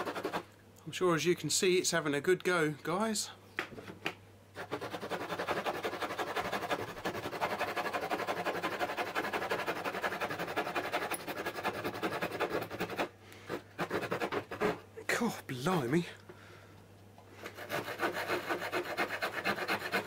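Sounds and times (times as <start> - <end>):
small saw rasping through wood: 0.0 - 0.4, 4.6 - 14.8, 17.4 - 20.0.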